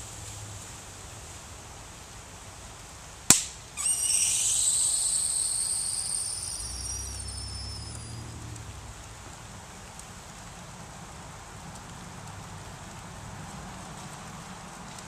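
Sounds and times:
sharp pop of bottle bursting: 3.3 - 4.0
high whistling gas hiss: 3.7 - 8.7.

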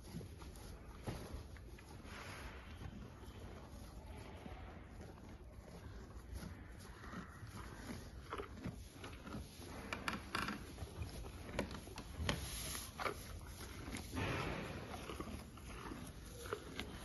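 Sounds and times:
cow chewing: 0.0 - 17.0
hay rustling and crackling: 11.2 - 17.0.

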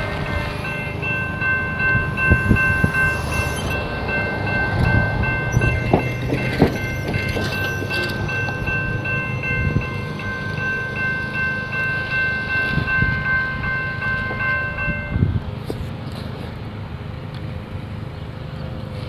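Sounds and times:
railroad crossing bell ringing: 0.0 - 15.6.

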